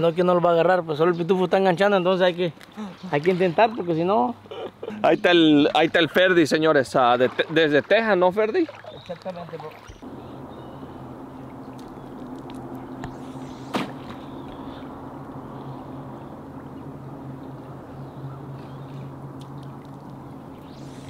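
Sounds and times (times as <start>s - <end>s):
flowing river water: 5.3s - 10.4s
low steady hum: 9.7s - 21.0s.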